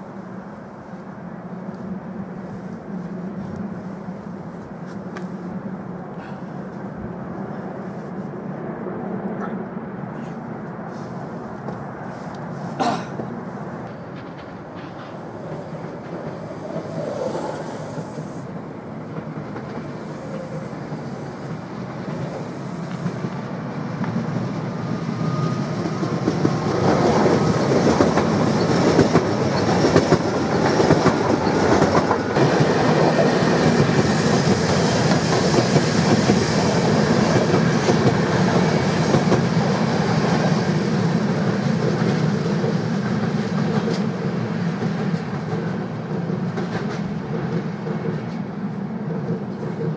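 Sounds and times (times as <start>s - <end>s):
train wheels clattering over rail joints: 13.2s - 23.4s, 26.0s - 39.7s.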